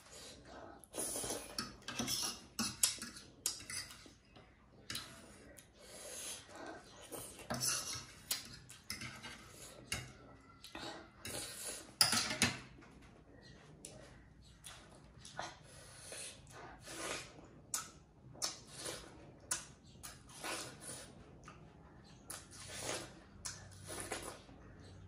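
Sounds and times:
noodle slurping and chewing: 0:00.0 - 0:04.3, 0:14.8 - 0:24.6.

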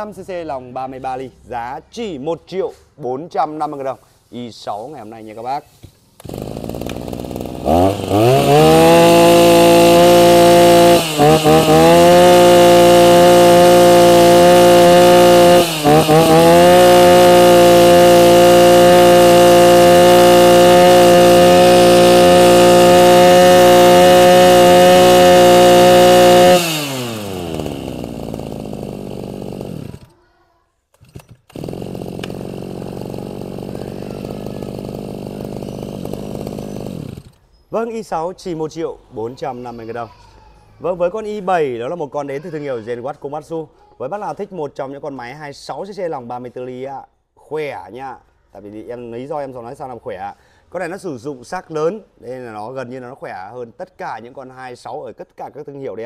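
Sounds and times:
brush cutter engine revving: 0:06.2 - 0:30.1, 0:31.0 - 0:37.4.

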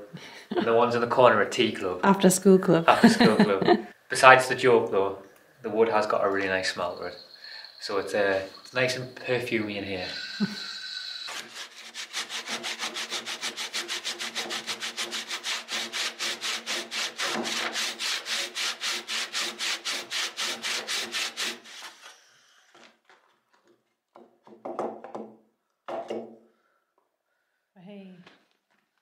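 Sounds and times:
hand saw cutting timber: 0:10.0 - 0:22.9.

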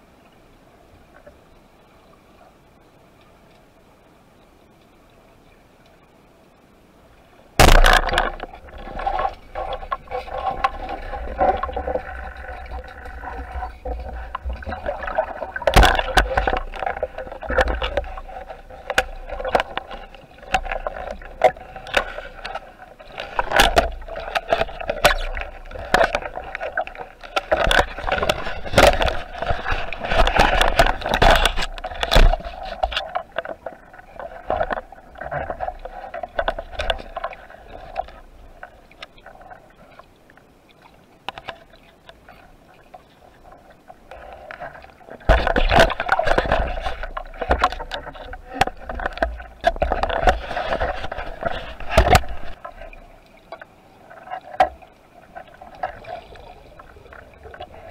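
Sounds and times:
water sloshing and splashing: 0:07.2 - 0:57.9
sharp clicks and knocks: 0:07.6 - 0:18.2, 0:18.8 - 0:33.6, 0:45.3 - 0:52.6.

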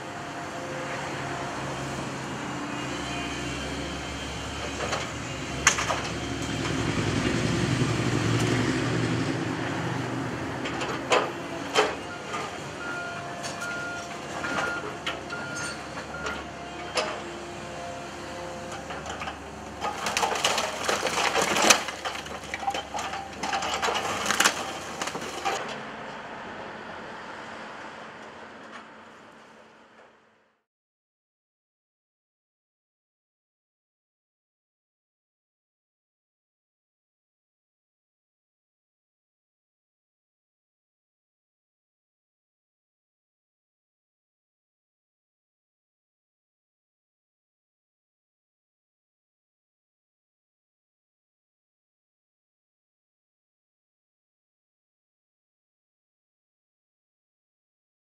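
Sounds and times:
excavator engine running: 0:00.0 - 0:29.9
bricks clattering and crashing: 0:19.8 - 0:25.6.

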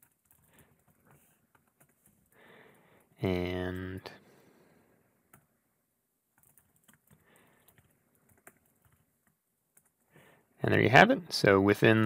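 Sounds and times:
faint keyboard keystrokes: 0:00.0 - 0:02.4, 0:06.3 - 0:10.1.

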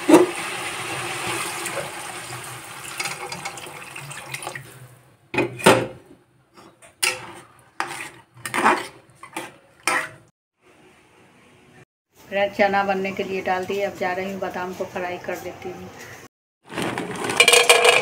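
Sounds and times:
metal spatula clattering on pan: 0:17.4 - 0:18.0.

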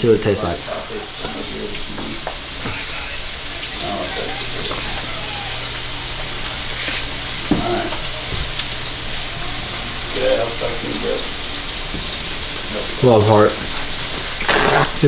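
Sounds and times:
food sizzling in a pan: 0:00.0 - 0:15.0.

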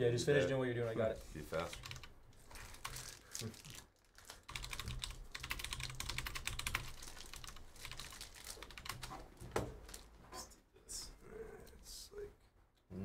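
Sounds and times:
typing on a keyboard: 0:01.6 - 0:03.1, 0:04.4 - 0:09.2.

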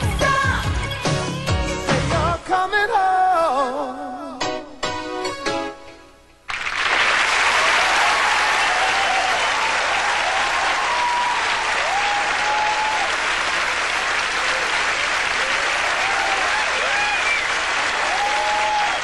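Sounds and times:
audience applauding: 0:06.5 - 0:19.0.

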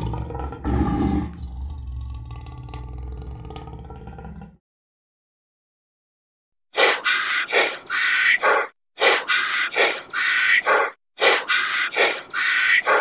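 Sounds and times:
parrot squawking: 0:06.8 - 0:13.0.

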